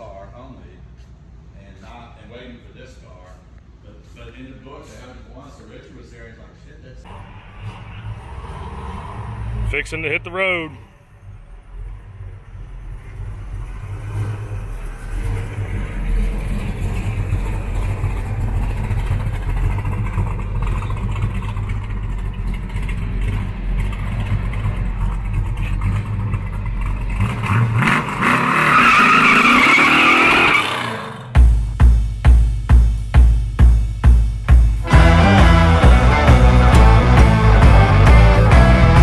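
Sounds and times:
car engine exhaust rumble: 0:07.1 - 0:29.1
loud bright engine sound: 0:34.8 - 0:39.0.

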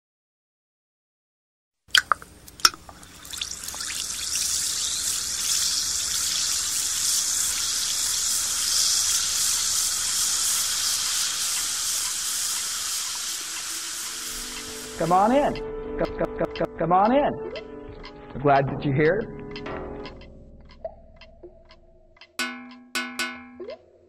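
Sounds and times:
sharp drip-like clicks: 0:02.0 - 0:15.4, 0:17.5 - 0:18.2, 0:19.6 - 0:23.8
steady high hiss: 0:02.5 - 0:17.2.

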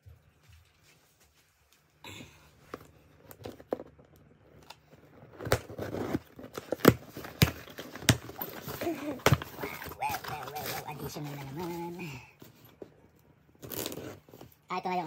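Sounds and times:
packing tape tearing off cardboard: 0:04.6 - 0:11.6, 0:13.6 - 0:14.7.

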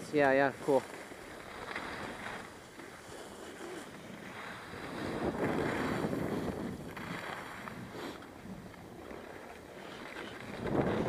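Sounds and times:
skis scraping over snow: 0:00.0 - 0:11.0
wind rushing over microphone: 0:03.6 - 0:09.4, 0:10.3 - 0:11.0.

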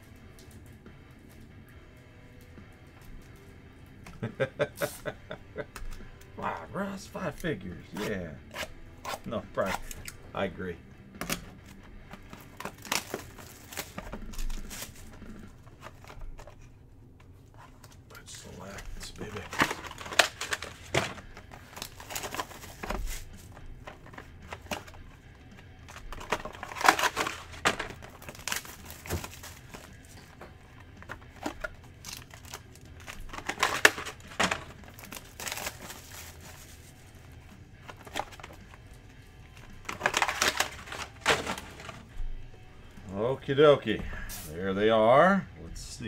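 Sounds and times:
packaging crinkling: 0:11.6 - 0:16.7, 0:17.6 - 0:25.0, 0:25.8 - 0:38.7, 0:39.5 - 0:42.1.

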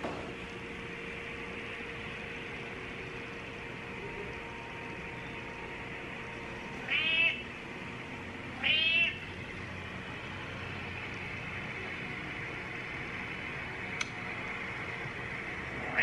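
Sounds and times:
faint background hum: 0:00.0 - 0:16.0
cat meowing: 0:06.9 - 0:07.4, 0:08.6 - 0:09.2.

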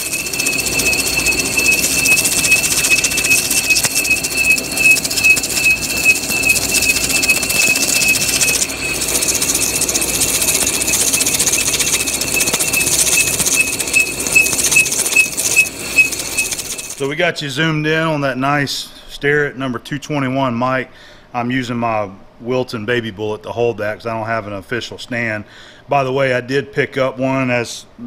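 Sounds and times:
lathe tool squealing: 0:00.0 - 0:17.0.

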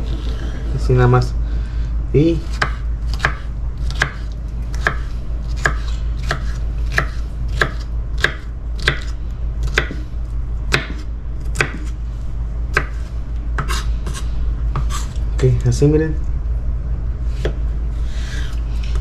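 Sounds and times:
knife chopping on wooden board: 0:02.4 - 0:10.0, 0:10.7 - 0:12.0, 0:12.7 - 0:13.0, 0:13.6 - 0:15.0, 0:17.4 - 0:17.6.

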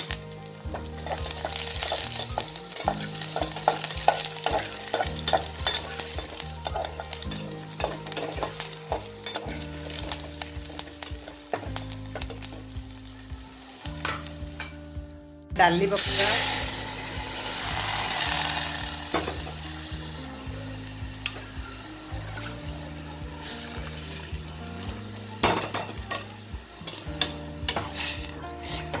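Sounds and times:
food sizzling in hot oil: 0:00.0 - 0:29.0
spatula stirring and scraping pot: 0:00.7 - 0:12.3, 0:26.9 - 0:29.0.

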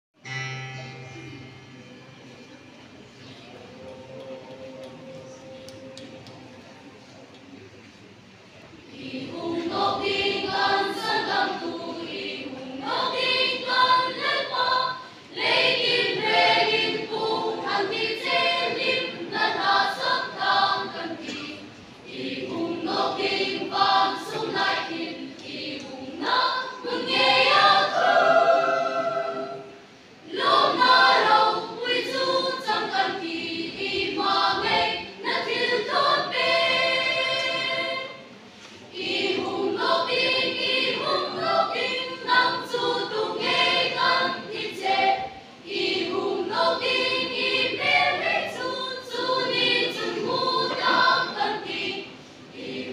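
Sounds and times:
choir singing without instruments: 0:03.0 - 0:07.1, 0:08.8 - 0:52.9.

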